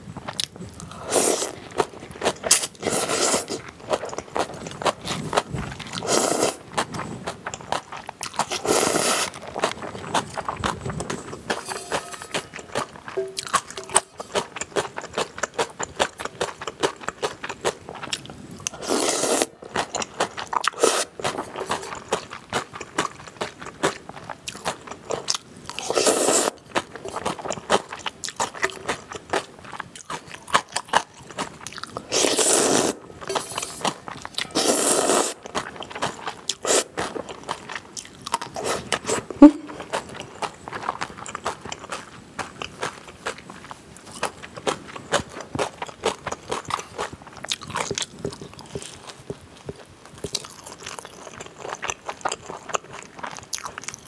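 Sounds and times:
wet chewing: 0.2 - 54.0
noodle slurping: 0.9 - 6.9, 8.4 - 15.0, 18.7 - 22.2, 25.8 - 27.9, 32.0 - 37.2, 38.5 - 40.1.

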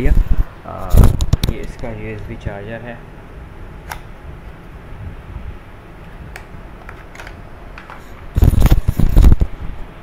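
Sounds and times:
muffled rubbing on microphone: 0.0 - 1.7, 8.0 - 9.6.

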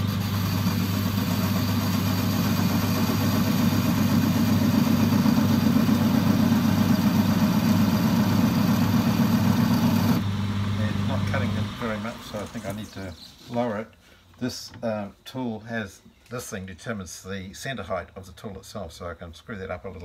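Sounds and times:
lathe motor hum: 0.0 - 12.8.

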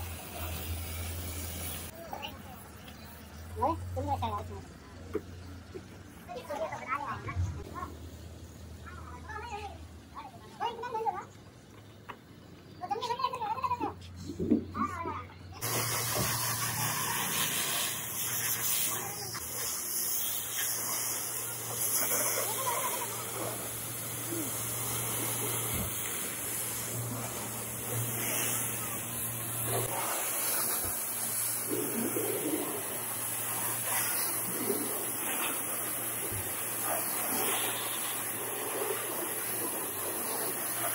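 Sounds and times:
pressure washer jet hissing: 0.0 - 2.6, 15.6 - 40.9.

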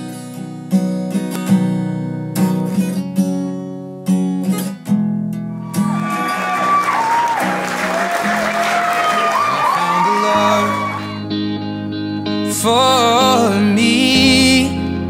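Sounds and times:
strummed acoustic guitar: 0.0 - 15.0
crowd applauding and cheering: 5.6 - 11.3.

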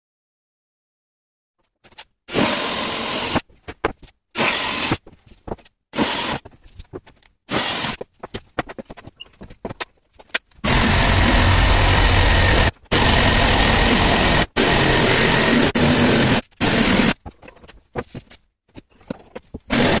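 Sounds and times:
power tool bursts: 2.3 - 3.4, 4.4 - 5.0, 6.0 - 6.4, 7.5 - 8.0, 10.6 - 17.2, 19.7 - 20.0
router cutting into board: 2.3 - 3.4, 4.4 - 5.0, 6.0 - 6.4, 7.5 - 8.0, 10.6 - 17.2, 19.7 - 20.0.

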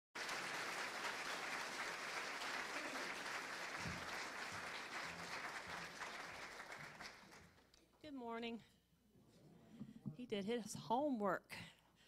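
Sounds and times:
congregation applauding: 0.2 - 7.7.

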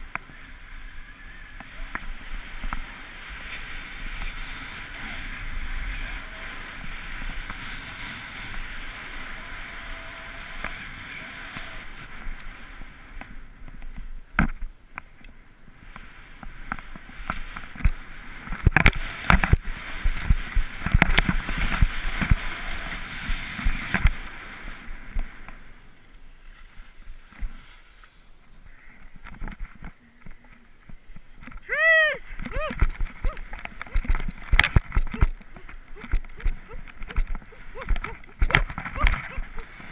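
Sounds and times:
skis hissing over snow: 0.3 - 13.4, 15.8 - 25.8, 26.4 - 28.4.

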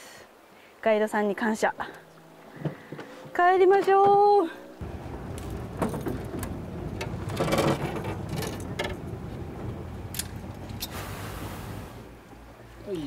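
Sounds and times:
clicks and rattles from fishing boat: 4.9 - 10.9.

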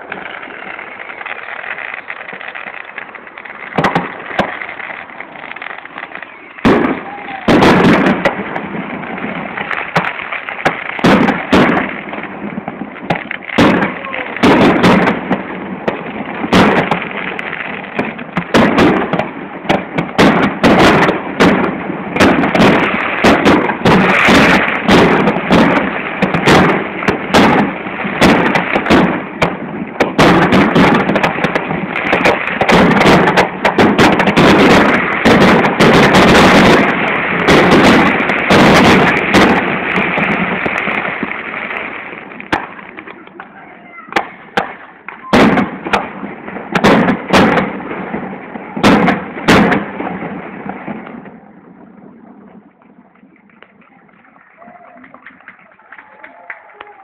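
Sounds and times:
fireworks crackling: 0.0 - 57.0.

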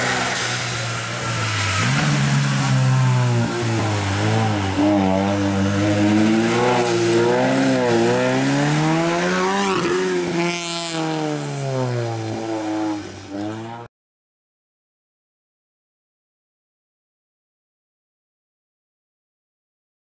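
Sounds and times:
rally car engine revving: 0.0 - 13.9.

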